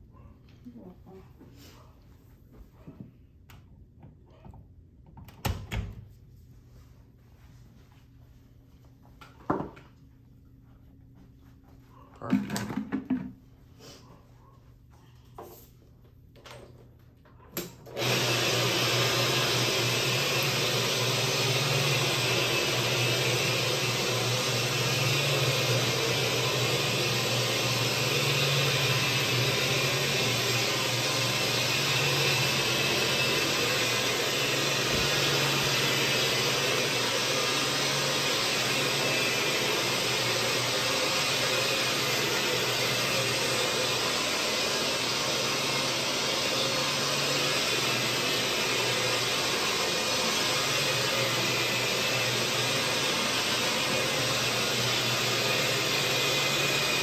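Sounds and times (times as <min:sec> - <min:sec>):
carpet cleaning machine running: 0:17.8 - 0:57.0.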